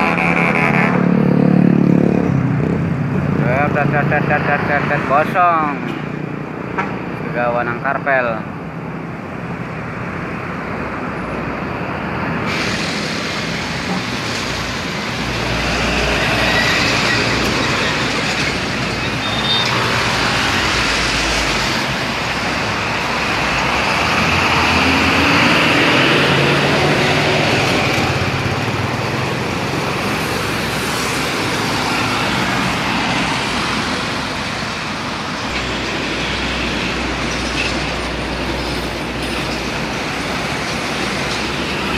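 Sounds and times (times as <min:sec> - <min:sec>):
road traffic: 0:00.0 - 0:41.9
bus driving past: 0:09.4 - 0:41.9.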